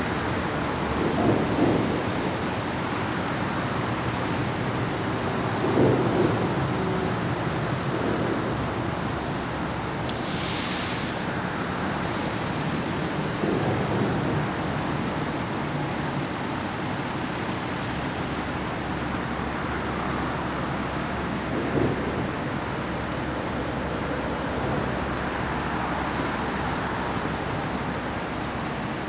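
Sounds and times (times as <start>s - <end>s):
short hiss: 10.1s - 11.3s.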